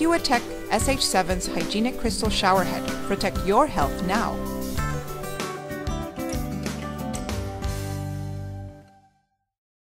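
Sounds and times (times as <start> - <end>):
plucked guitar notes: 0.9 - 9.1
held bass: 2.1 - 8.8.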